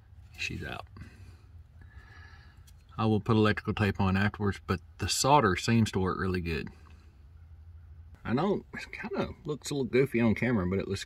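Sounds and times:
low steady hum: 0.0s - 11.0s
faint breath: 1.0s - 2.8s.

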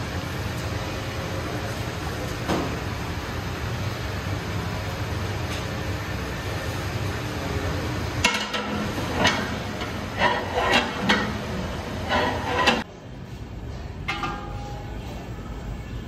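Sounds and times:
gas burners roaring: 0.0s - 16.0s
metal utensils clanking on pots: 8.2s - 12.9s, 14.0s - 15.2s.

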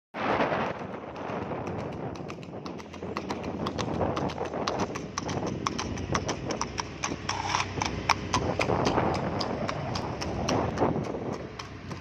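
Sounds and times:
horse hooves clip-clopping on asphalt: 0.2s - 12.0s.

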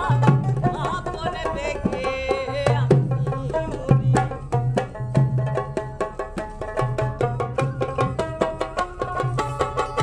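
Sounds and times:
barrel drum beat with deep thumps: 0.0s - 10.0s
plucked lute melody: 3.2s - 10.0s.

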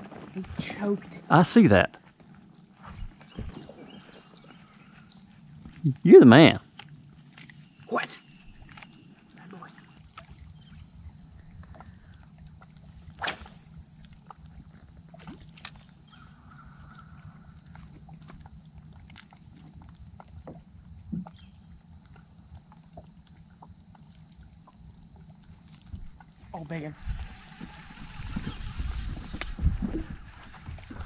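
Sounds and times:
steady low hum: 0.0s - 31.0s
faint high whine: 2.8s - 18.0s.

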